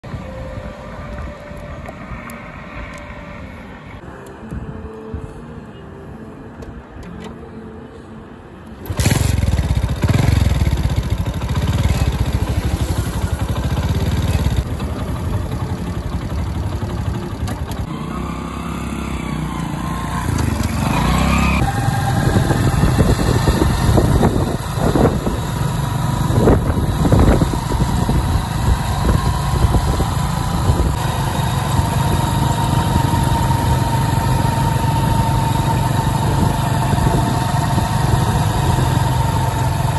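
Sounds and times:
motorcycle engine kick-started: 8.8 - 39.9
motorcycle riding away: 8.8 - 39.9.

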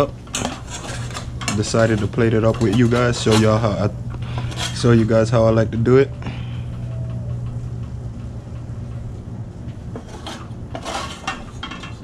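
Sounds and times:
low hum: 0.0 - 12.0
metal spatula scraping pan: 0.3 - 5.1, 10.0 - 12.0.

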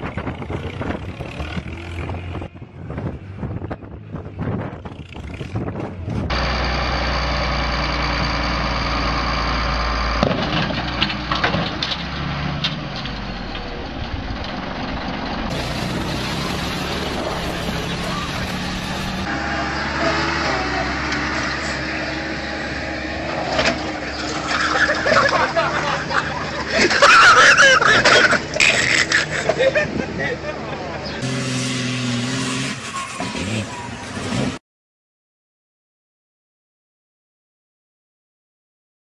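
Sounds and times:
vehicle engines running: 0.0 - 34.6.

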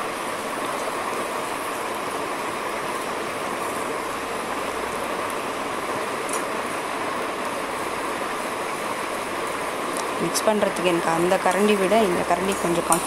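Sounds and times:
vegetables sizzling in oil: 5.9 - 13.0.

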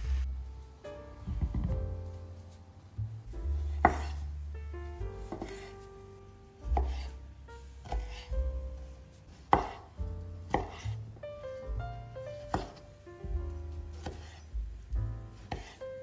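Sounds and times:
soft piano background music: 0.0 - 16.0
knife knocking on wooden board: 1.3 - 2.0.

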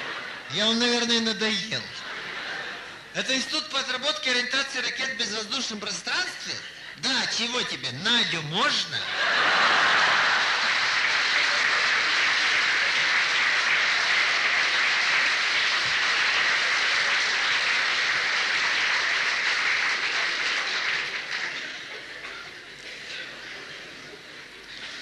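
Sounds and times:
audience applauding: 9.3 - 22.6.

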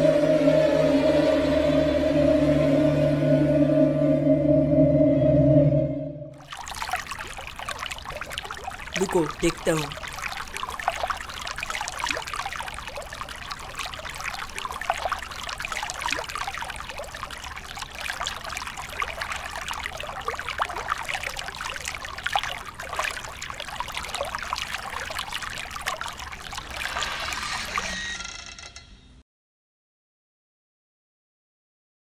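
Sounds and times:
trickling crackling noise: 6.4 - 28.8.

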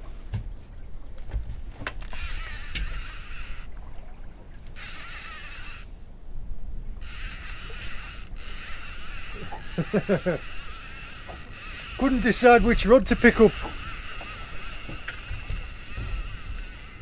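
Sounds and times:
fishing reel being cranked: 2.1 - 3.7, 4.8 - 5.9, 7.0 - 17.0.

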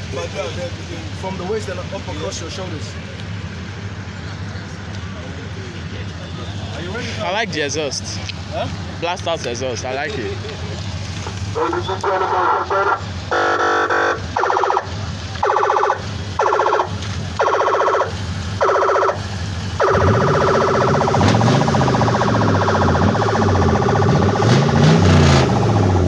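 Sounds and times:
truck engine revving: 0.0 - 26.0
siren blasts and tone: 12.8 - 24.7.

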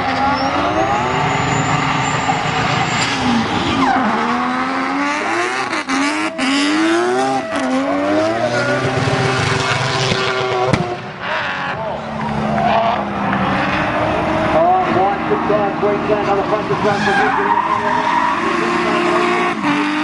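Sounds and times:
car engine revving hard: 0.0 - 20.0
tyres screeching: 12.6 - 20.0.

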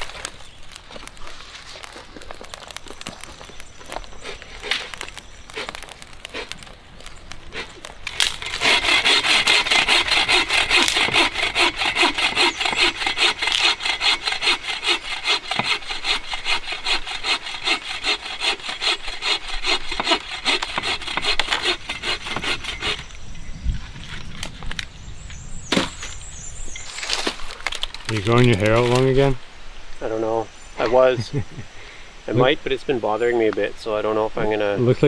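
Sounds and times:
hand saw cutting wood: 7.6 - 23.1.

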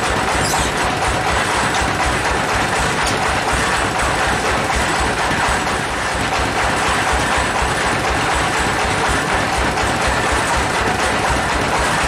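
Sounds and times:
sawmill machinery running: 0.0 - 12.0.

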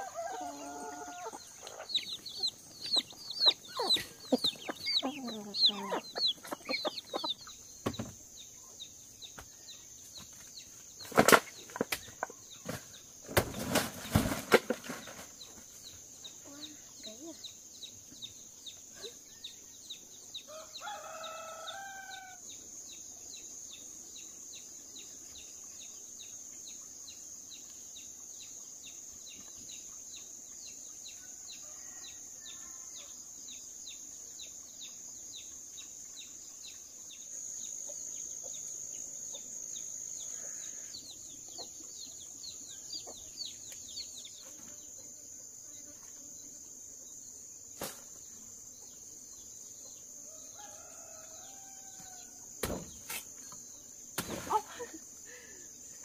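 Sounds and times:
rooster crowing: 0.0 - 1.9, 20.5 - 22.4, 50.4 - 52.4
high drone of insects: 0.0 - 56.0.

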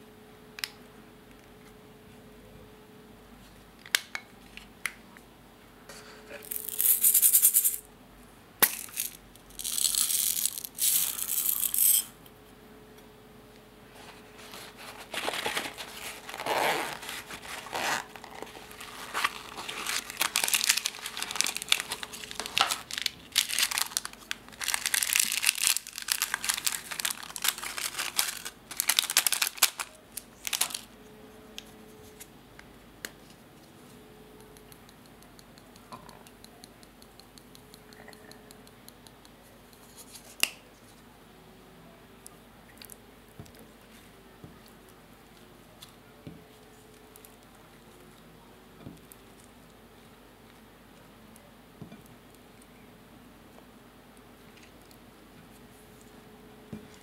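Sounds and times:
packaging crinkling and rustling: 14.1 - 30.9.

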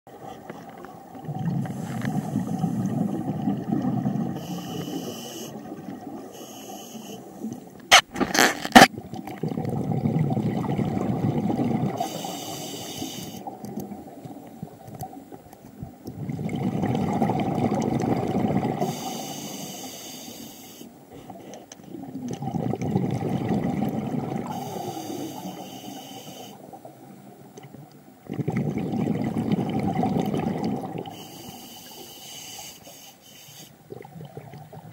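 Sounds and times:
regulator inhale hiss: 1.6 - 3.1, 4.4 - 5.7, 6.3 - 7.6, 12.0 - 13.5, 18.8 - 21.8, 24.5 - 26.8, 31.1 - 33.9
gurgling exhaust bubbles: 8.9 - 12.0, 16.1 - 18.9, 21.9 - 24.6, 28.2 - 31.1.

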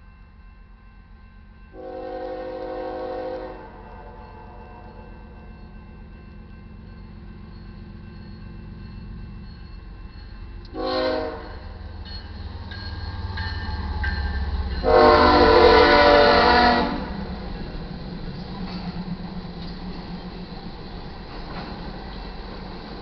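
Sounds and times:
crossing bell ringing: 0.0 - 23.0
train air horn blasts: 1.8 - 5.1, 10.7 - 11.8, 14.8 - 17.3
locomotive low rumble: 5.2 - 23.0.

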